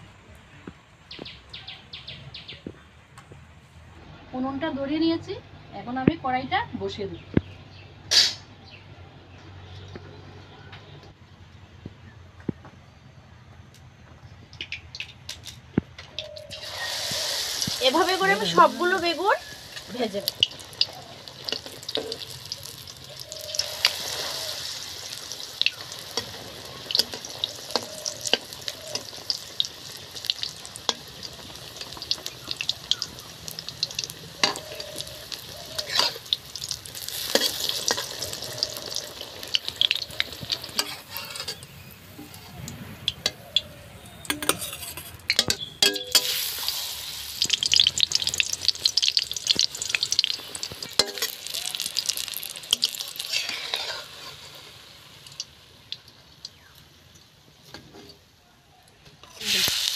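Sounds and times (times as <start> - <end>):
food sizzling in hot oil: 16.2 - 56.8, 59.3 - 59.9
spatula scraping and tapping pan: 34.4 - 35.0, 35.7 - 36.3, 39.8 - 42.4, 44.2 - 46.4, 50.6 - 51.4, 52.7 - 54.4.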